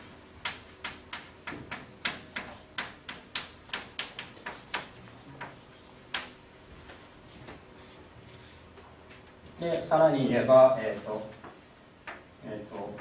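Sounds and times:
chalk tapping on blackboard: 0:00.0 - 0:07.6.

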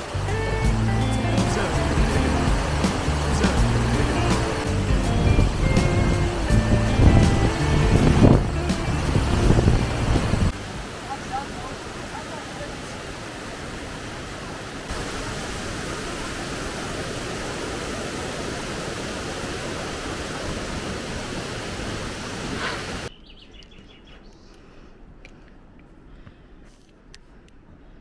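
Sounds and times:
stream and waterfall rushing: 0:00.0 - 0:23.1
faint bird chirps: 0:22.6 - 0:24.7.

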